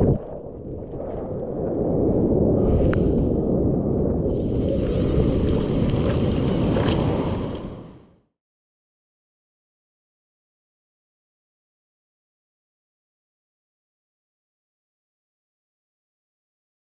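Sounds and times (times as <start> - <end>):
wind buffeting microphone: 0.0 - 8.0
whitewater rushing and churning: 4.4 - 7.9
splash clicks: 5.4 - 7.8.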